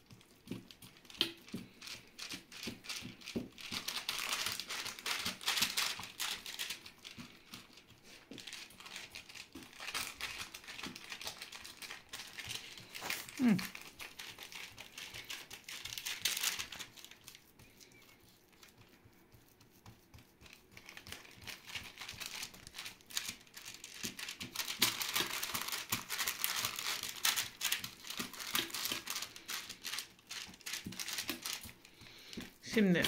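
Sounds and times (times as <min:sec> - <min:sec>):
sticky crackles of dough pressed: 0:00.0 - 0:33.0.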